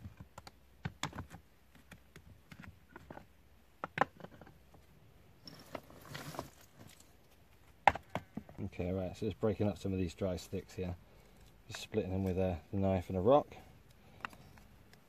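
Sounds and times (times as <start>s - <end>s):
scraping rustle: 5.4s - 7.4s
wood knocking on stone: 7.8s - 8.6s.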